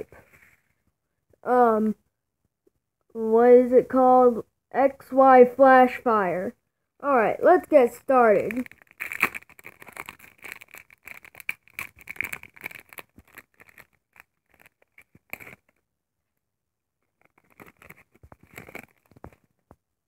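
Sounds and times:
foil wrapper crinkling and tearing: 8.4s - 15.8s, 17.0s - 19.6s.

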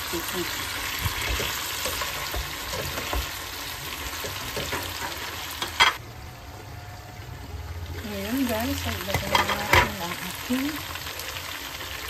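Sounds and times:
food sizzling in a wok: 0.0s - 12.0s.

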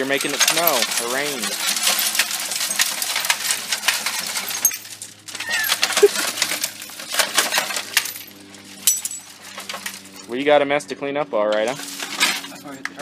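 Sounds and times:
glass shards clinking and tinkling: 0.3s - 10.3s.

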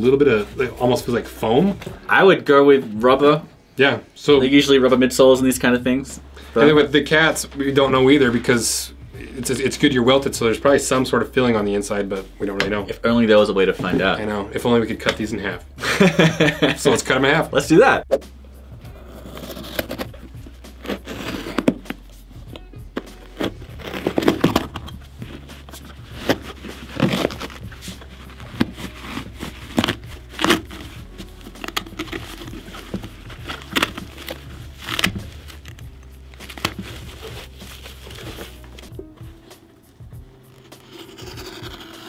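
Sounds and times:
background music: 0.0s - 42.0s
leather crinkling and creaking: 18.9s - 39.5s, 40.2s - 42.0s.

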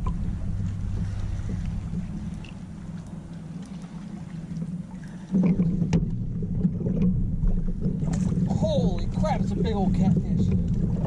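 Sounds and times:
wind noise on microphone: 0.0s - 3.0s
low steady hum: 0.0s - 11.0s
water noise: 0.0s - 11.0s.

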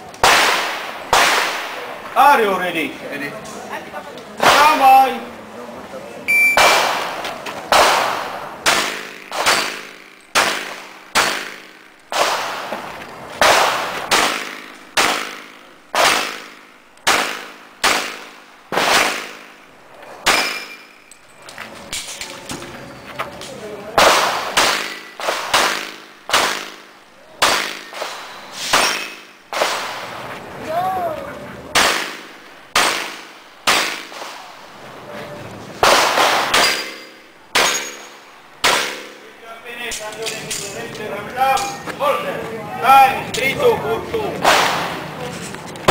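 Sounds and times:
pistol shots with echo: 0.2s - 1.9s, 6.5s - 12.8s, 13.4s - 19.6s, 20.2s - 21.0s, 24.0s - 30.2s, 31.7s - 34.5s, 35.8s - 39.2s, 44.4s - 45.1s.

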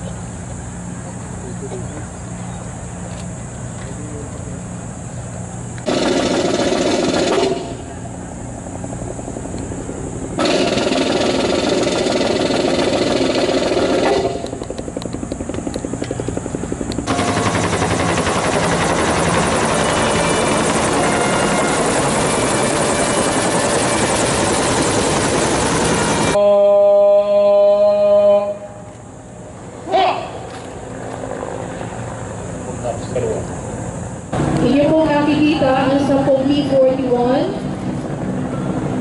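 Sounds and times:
helicopter engine noise: 0.0s - 26.4s, 28.9s - 39.0s
helicopter rotor chop: 0.0s - 26.4s, 29.3s - 39.0s.

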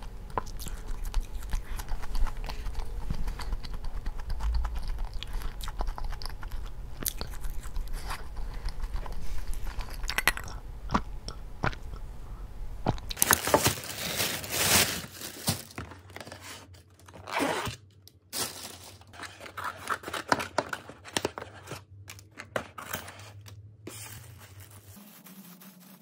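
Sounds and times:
plastic lid crinkling: 13.2s - 17.7s.

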